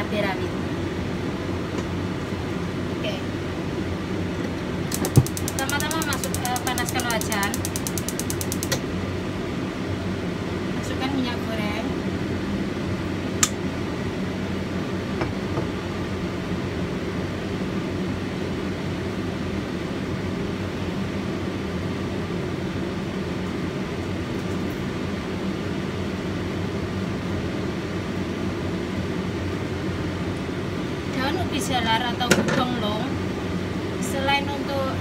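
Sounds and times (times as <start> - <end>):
extractor fan humming: 0.0 - 35.0
sharp click: 4.9 - 8.8.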